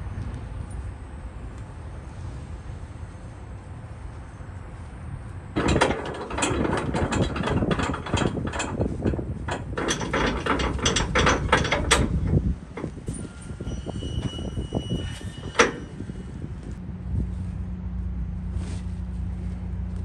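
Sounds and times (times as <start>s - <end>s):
winch pawl clicking: 5.6s - 16.0s.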